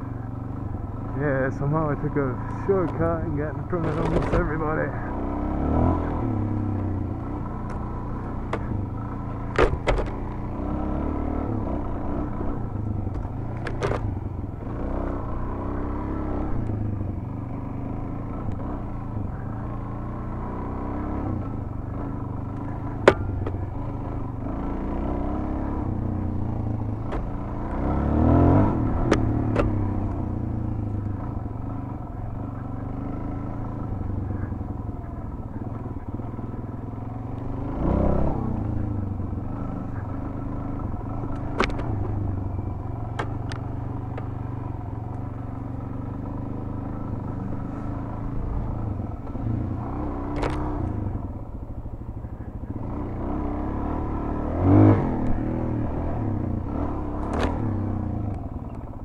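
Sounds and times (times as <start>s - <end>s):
motorcycle engine revving: 0.0s - 59.0s
sharp knocks and clicks: 3.8s - 4.5s, 7.6s - 8.8s, 9.4s - 10.4s, 13.1s - 14.1s, 22.5s - 23.6s, 27.0s - 27.4s, 28.9s - 30.2s, 41.3s - 42.2s, 43.1s - 44.3s, 50.3s - 50.7s, 57.2s - 57.6s.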